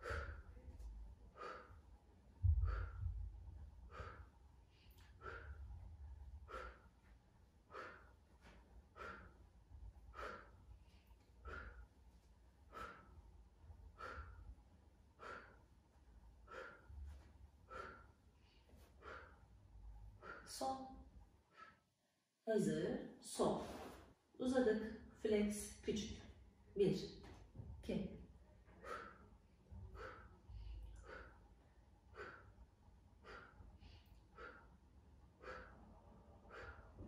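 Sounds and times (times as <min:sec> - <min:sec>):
woman breathing out hard: 0:02.4 - 0:03.2, 0:03.9 - 0:05.8, 0:06.4 - 0:06.9, 0:07.7 - 0:09.4, 0:10.1 - 0:11.9, 0:28.8 - 0:31.5.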